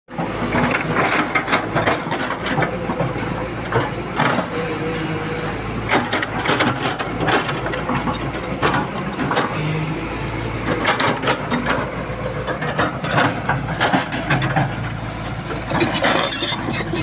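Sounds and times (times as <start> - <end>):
excavator diesel engine running: 0.1 - 17.0.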